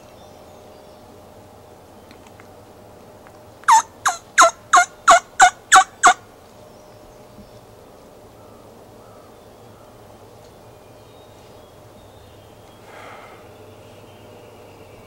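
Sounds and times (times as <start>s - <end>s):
turkey calling: 3.7s - 6.2s.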